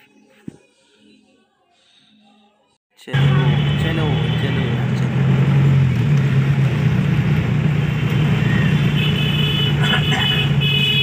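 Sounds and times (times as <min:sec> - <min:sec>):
vehicle horn honks: 0:03.1 - 0:04.8, 0:08.4 - 0:11.0
car engine drone: 0:03.1 - 0:11.0.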